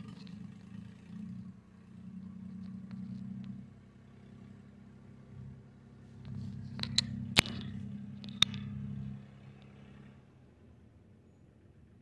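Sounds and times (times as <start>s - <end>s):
tractor engine running: 0.0s - 10.5s
sharp clicks: 6.2s - 8.7s.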